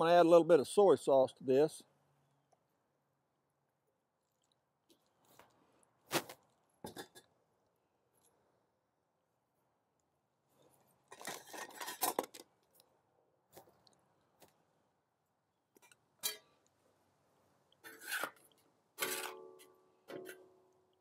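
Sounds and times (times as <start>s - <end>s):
spoon scraping a steel wok: 17.8s - 19.4s.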